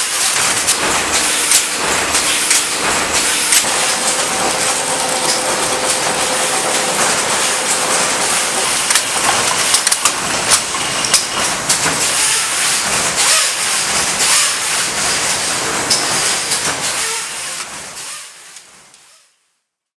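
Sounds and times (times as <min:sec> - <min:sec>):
knitting machinery clattering: 0:00.0 - 0:17.8
sharp machine clicks: 0:00.1 - 0:12.6.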